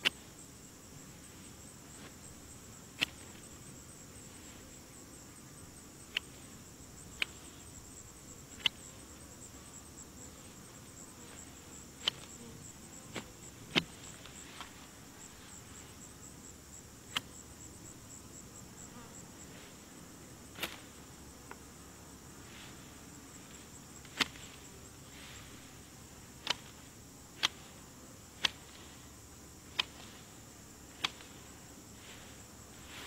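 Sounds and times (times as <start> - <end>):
insects chirping: 0.0 - 33.0
hand shears snipping: 3.0 - 3.4, 6.1 - 6.4, 12.0 - 12.4, 20.6 - 20.8, 24.0 - 24.5, 26.4 - 26.8, 27.4 - 27.7, 28.4 - 28.8, 29.7 - 30.2, 30.9 - 31.4.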